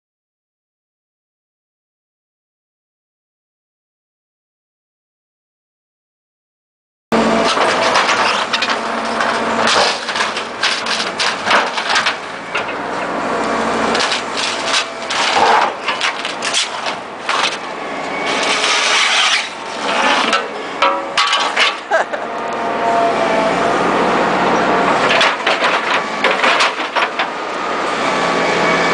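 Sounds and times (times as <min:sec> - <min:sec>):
excavator diesel engine: 0:07.1 - 0:28.9
rubber and metal crunching: 0:13.9 - 0:22.1.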